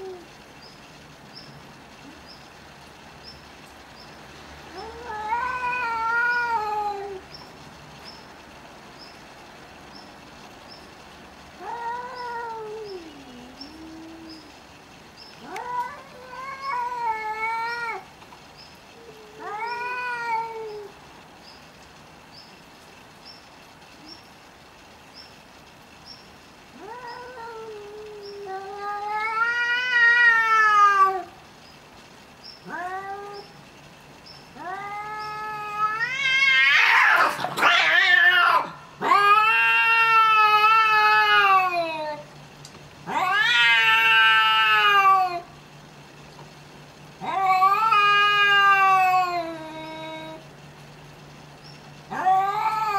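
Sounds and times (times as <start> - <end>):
cats yowling: 0.0 - 0.3, 4.6 - 7.3, 11.6 - 14.6, 15.4 - 18.1, 19.0 - 21.0, 26.7 - 31.4, 32.6 - 33.6, 34.5 - 42.3, 43.0 - 45.6, 47.2 - 50.5, 52.1 - 52.9
cats fighting outburst: 4.6 - 7.3, 11.5 - 18.2, 19.0 - 21.0, 26.6 - 31.5, 32.6 - 46.1, 46.7 - 52.9.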